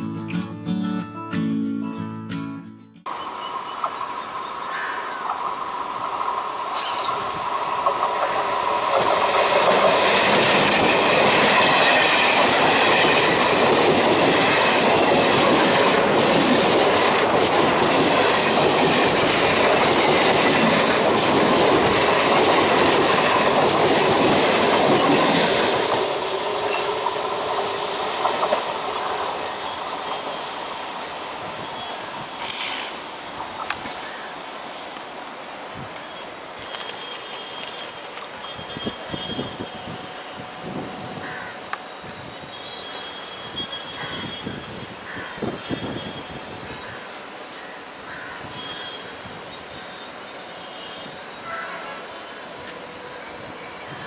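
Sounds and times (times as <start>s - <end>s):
train wheels clattering: 6.8s - 30.5s.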